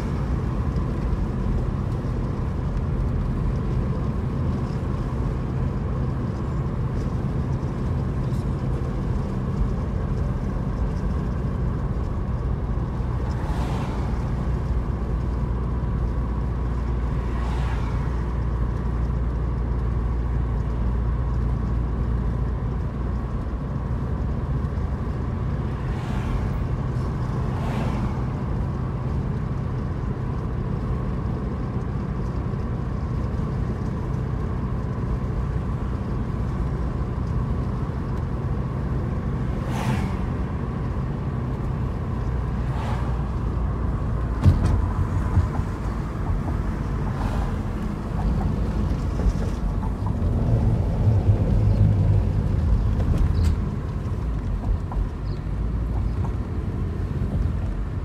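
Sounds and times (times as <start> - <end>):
car interior road noise: 0.0 - 58.0
passing cars whooshing: 13.2 - 14.9, 16.9 - 18.5, 25.6 - 28.7, 39.4 - 40.6, 42.1 - 55.2.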